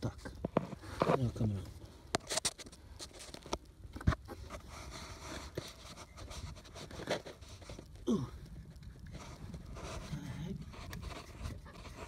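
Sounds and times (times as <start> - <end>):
clicks and scraping of parts: 2.1 - 8.0.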